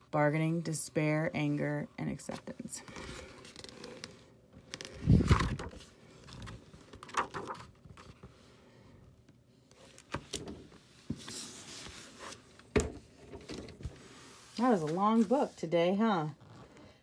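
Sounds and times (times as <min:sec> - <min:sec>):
book pages turning: 0:02.3 - 0:08.5, 0:13.4 - 0:15.6.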